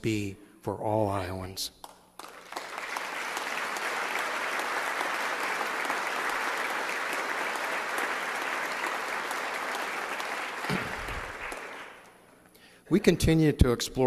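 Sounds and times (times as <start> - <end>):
audience applauding: 2.2 - 12.2.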